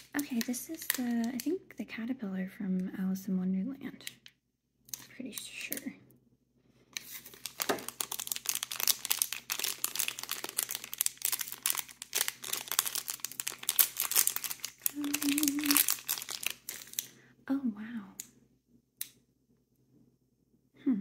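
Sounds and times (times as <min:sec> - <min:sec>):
packaging wrapper crinkling: 0:00.0 - 0:01.6, 0:06.9 - 0:17.1.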